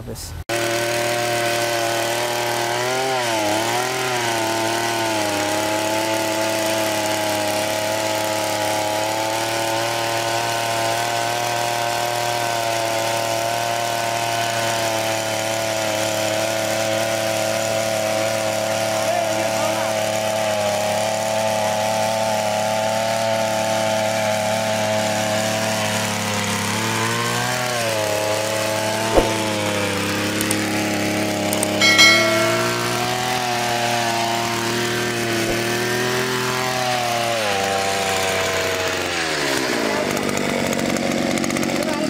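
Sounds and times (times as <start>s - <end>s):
two-stroke earth auger engine: 0.5s - 31.8s, 35.1s - 42.0s
brief high ring: 31.8s - 33.7s.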